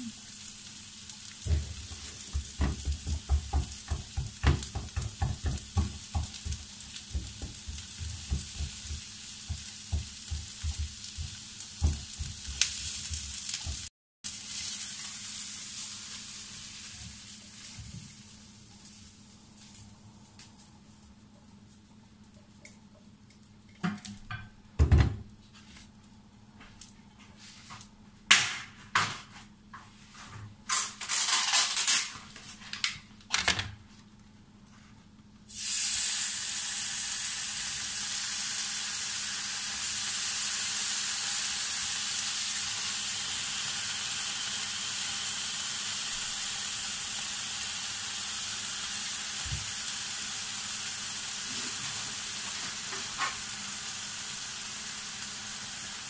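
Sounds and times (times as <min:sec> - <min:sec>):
meat sizzling in a pan: 0:00.0 - 0:19.8, 0:35.5 - 0:56.0.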